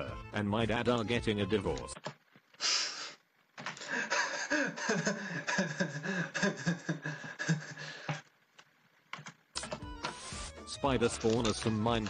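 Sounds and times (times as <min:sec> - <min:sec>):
man laughing hard: 0:03.8 - 0:08.2.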